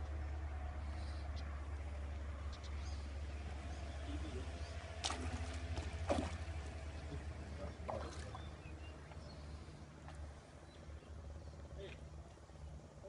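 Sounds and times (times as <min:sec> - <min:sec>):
splashes on water surface: 0:04.8 - 0:08.6.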